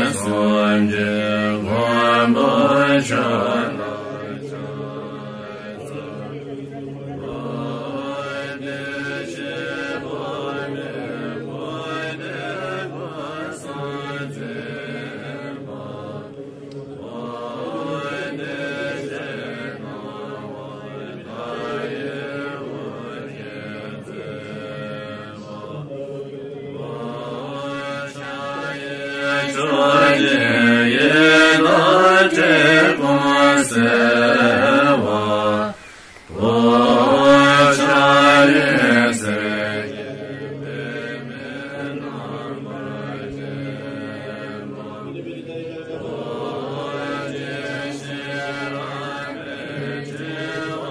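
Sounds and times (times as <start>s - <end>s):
group chanting a mantra: 0.0s - 50.9s.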